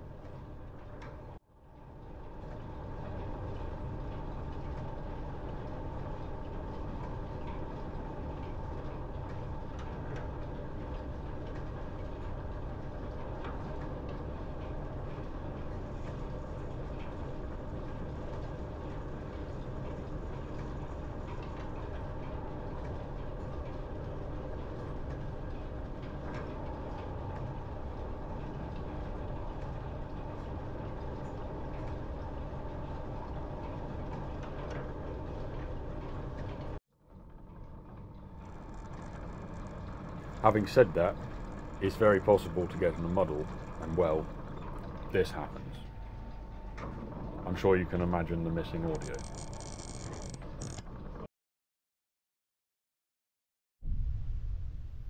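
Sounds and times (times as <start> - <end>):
line shafting mechanical rumble: 0.0 - 51.2.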